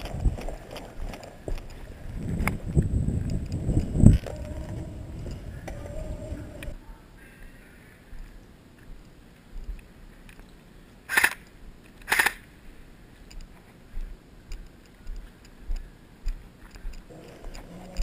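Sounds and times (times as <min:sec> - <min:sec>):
faint ticks and knocks of gear: 0:00.0 - 0:05.9, 0:08.2 - 0:10.6, 0:13.2 - 0:18.0.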